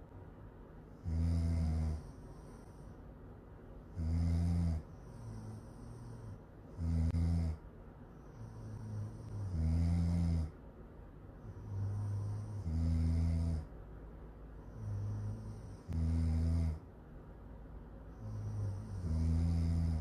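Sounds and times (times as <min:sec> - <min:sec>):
soft breathing: 0:00.8 - 0:10.6, 0:11.2 - 0:16.9
woman snoring: 0:01.0 - 0:03.0, 0:03.9 - 0:07.6, 0:08.2 - 0:10.6, 0:11.4 - 0:13.7, 0:14.6 - 0:16.8, 0:18.1 - 0:20.0.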